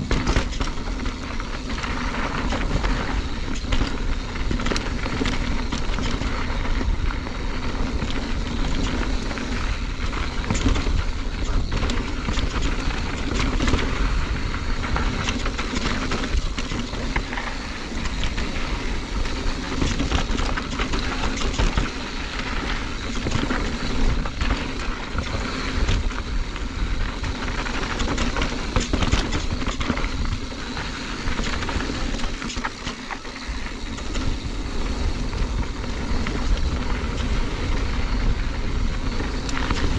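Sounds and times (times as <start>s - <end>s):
bike rattling over bumps: 0.0s - 39.9s
bike tyres rolling over gravel: 0.0s - 39.9s
wind buffeting microphone: 0.0s - 39.9s.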